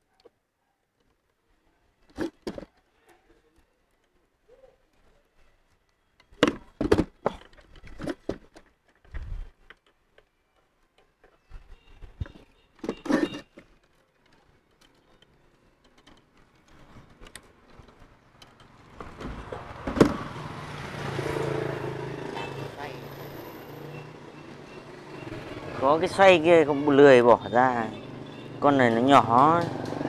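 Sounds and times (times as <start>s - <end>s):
vehicle engine hum: 17.1s - 30.0s.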